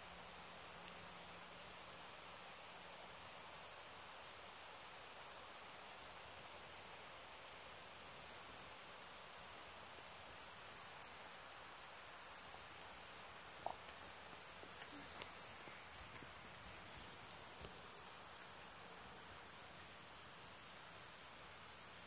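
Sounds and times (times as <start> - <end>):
insect chorus drone: 0.0 - 22.0
faint ticks: 0.7 - 1.2, 13.6 - 19.6.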